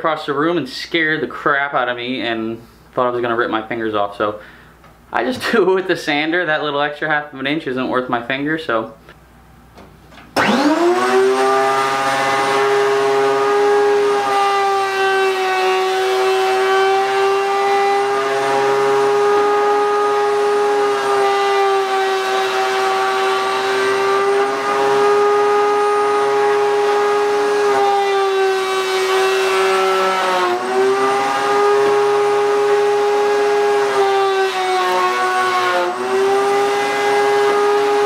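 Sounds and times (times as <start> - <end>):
wood router whining: 10.3 - 38.0.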